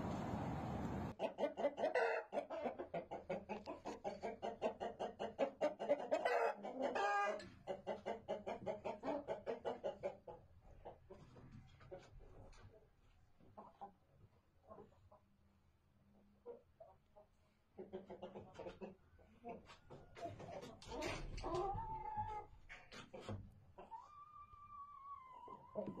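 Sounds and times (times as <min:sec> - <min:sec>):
rooster clucking: 0:01.1 - 0:11.2, 0:17.8 - 0:26.0.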